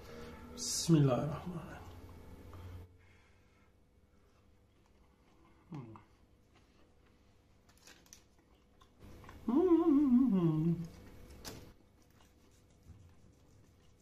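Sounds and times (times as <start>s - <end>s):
man humming: 5.6s - 6.1s, 9.4s - 10.9s.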